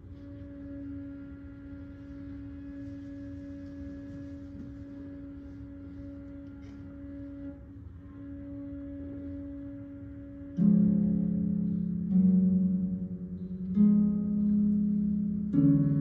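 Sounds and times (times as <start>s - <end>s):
cello bowed note: 0.0s - 16.0s.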